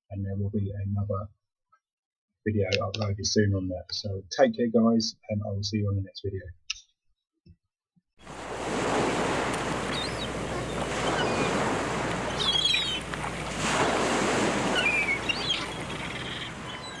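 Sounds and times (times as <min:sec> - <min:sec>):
waves breaking on shingle: 0:08.2 - 0:16.7
wind: 0:08.2 - 0:17.0
bird chirps: 0:09.9 - 0:11.6, 0:12.2 - 0:13.2, 0:14.7 - 0:17.0.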